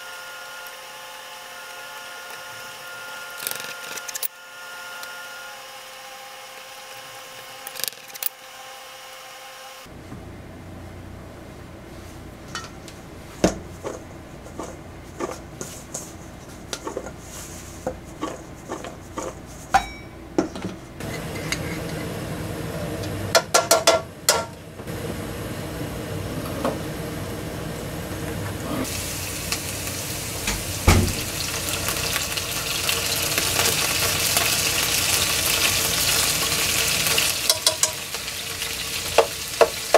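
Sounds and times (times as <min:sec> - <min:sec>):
kitchen clicks and knocks: 0:12.5 - 0:12.8, 0:17.9 - 0:22.0, 0:23.4 - 0:24.6, 0:30.4 - 0:31.5, 0:37.4 - 0:38.0
oil sizzling in a frying pan: 0:28.9 - 0:39.9
sharp knock: 0:30.8 - 0:31.3.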